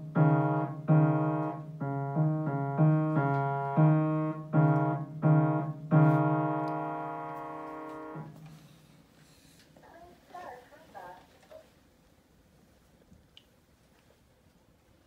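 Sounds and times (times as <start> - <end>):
piano notes struck: 0.0 - 8.5.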